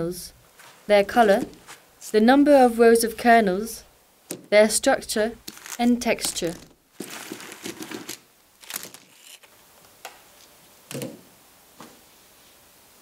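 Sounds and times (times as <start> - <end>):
dry corn cobs clacking: 5.4 - 9.5
rustle of handling corn cobs: 5.4 - 9.5.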